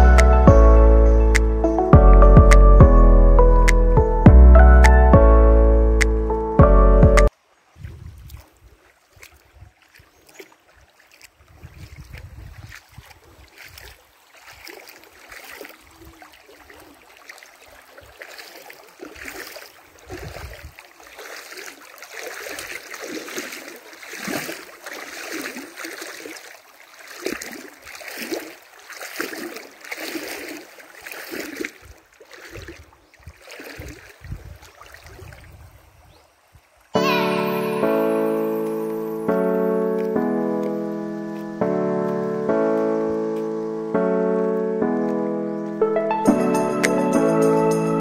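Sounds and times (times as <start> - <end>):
wading through splashing water: 7.2 - 48.0.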